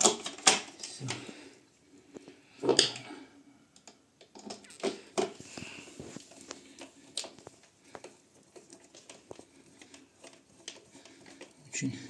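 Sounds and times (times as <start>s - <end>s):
clicks and scrapes on plastic: 0.0s - 1.2s, 3.8s - 11.9s.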